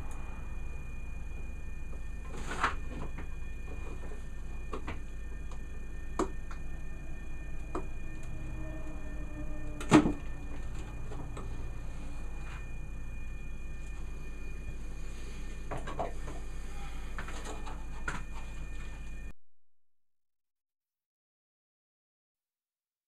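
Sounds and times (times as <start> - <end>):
low hum: 0.0 - 19.4.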